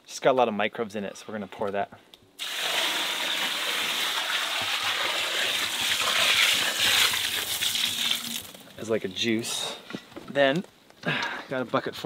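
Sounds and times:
water pouring and splashing: 2.4s - 9.0s.

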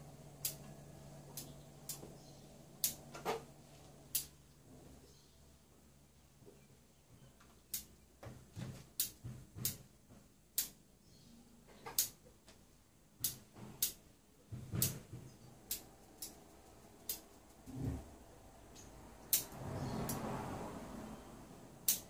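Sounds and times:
scissors snipping twigs: 15.7s - 17.4s.

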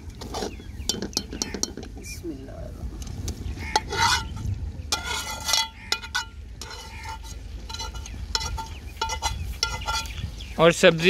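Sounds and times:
metal spoon clinking on pot: 4.9s - 10.2s.

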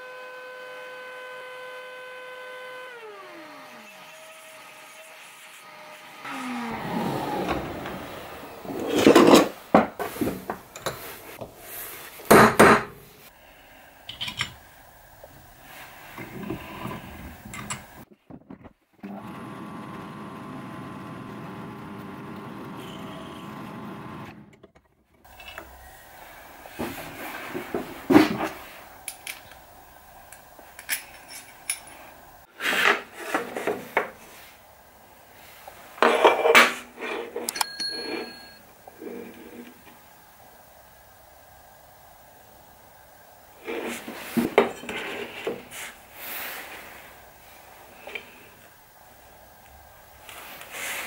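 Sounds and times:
steady hum: 6.3s - 18.1s, 25.3s - 51.0s
hand tools clinking in drawer: 30.3s - 32.2s, 36.2s - 38.6s.

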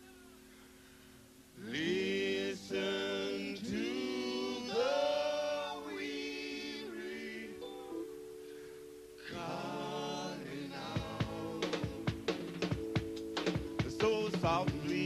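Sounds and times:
vocal harmonies singing: 0.0s - 15.0s
held keyboard chord: 7.0s - 15.0s.

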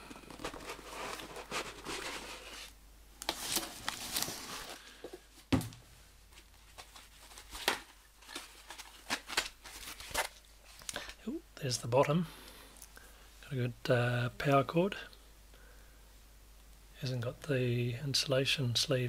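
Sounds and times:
cardboard and foam rustling: 0.0s - 10.4s.

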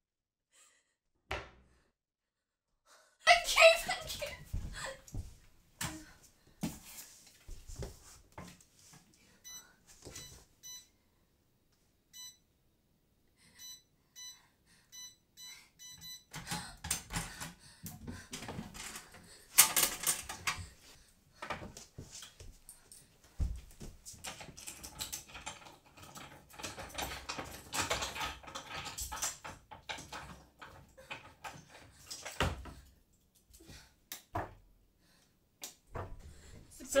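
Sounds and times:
keypad beeps: 12.2s - 12.4s, 15.0s - 16.3s
locked unit rattling and bumping: 24.2s - 32.4s.

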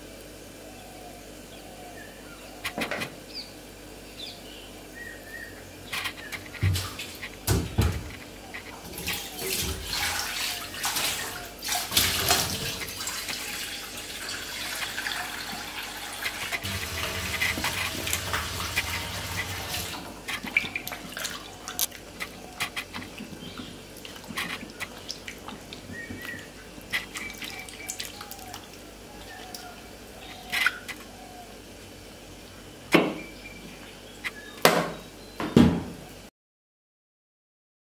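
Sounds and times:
water sloshing in metal bowl: 6.0s - 31.1s
water running and splashing: 6.2s - 31.1s
knocks on wooden cutting board: 7.5s - 8.1s, 34.7s - 36.0s.

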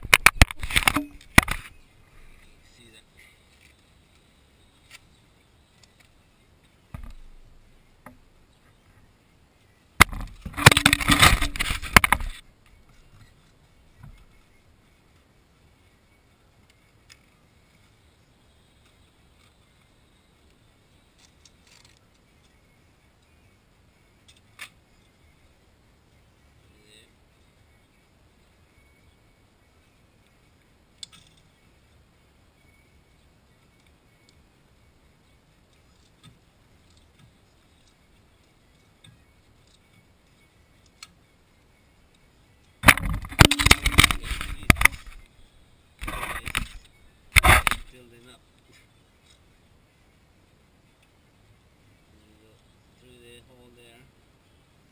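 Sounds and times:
knocking and rubbing on microphone: 0.0s - 2.5s, 6.9s - 8.2s, 10.0s - 13.3s, 42.8s - 45.3s, 46.0s - 47.9s
wire clicks: 10.0s - 12.4s, 42.8s - 45.3s.

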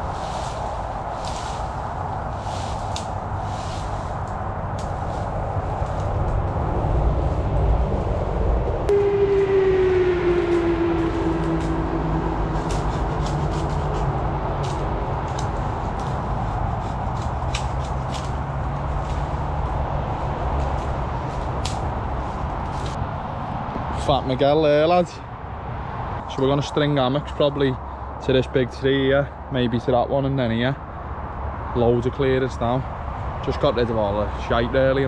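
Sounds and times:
twigs snapping and dragging: 0.0s - 6.7s, 12.5s - 23.0s
motorway traffic rumble: 0.0s - 35.0s
vehicle engine passing by: 1.2s - 23.7s.

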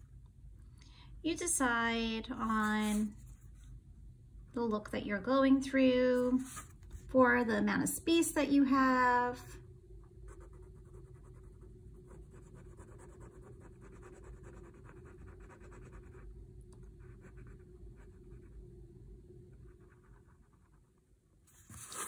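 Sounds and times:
pen scratching on paper: 10.3s - 16.2s.

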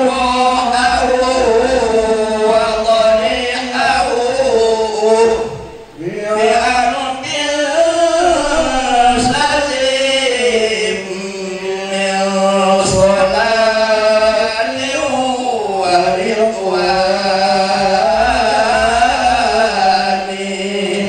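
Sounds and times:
person chanting devotional verses: 0.0s - 21.0s
sustained low drone note: 8.2s - 9.6s.

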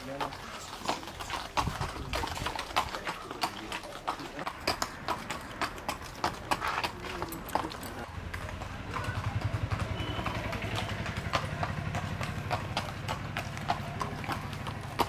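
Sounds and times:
horse hooves clip-clopping on dirt: 0.0s - 15.0s.

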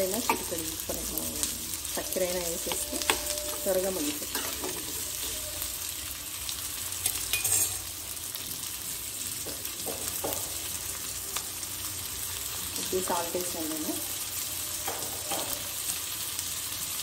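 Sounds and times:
onions sizzling in hot oil: 0.0s - 17.0s
spoon stirring in pot: 2.7s - 5.4s.

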